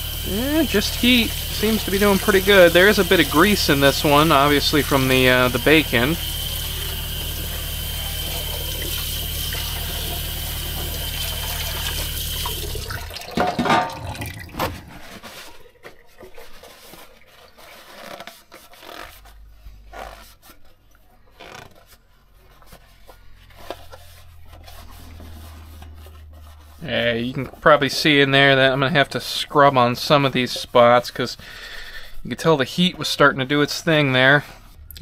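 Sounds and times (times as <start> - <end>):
low hum: 0.0 - 13.2
faucet water running into metal container: 0.0 - 17.8, 26.4 - 32.0
metal tub splash and clatter: 0.0 - 18.8
sponge scrubbing inside tub: 0.0 - 34.9.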